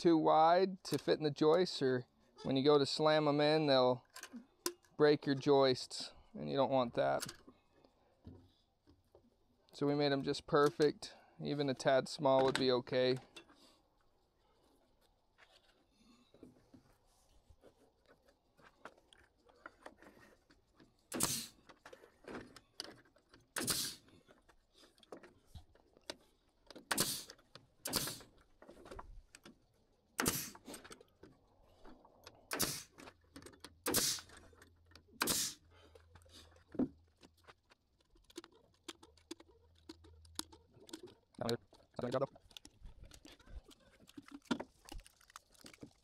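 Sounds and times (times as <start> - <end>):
wood being handled: 13.2 - 46.0
nail gun shots: 21.1 - 21.5, 23.6 - 24.0, 26.9 - 28.3, 30.2 - 30.6, 32.5 - 33.0, 33.8 - 34.4, 35.2 - 35.6.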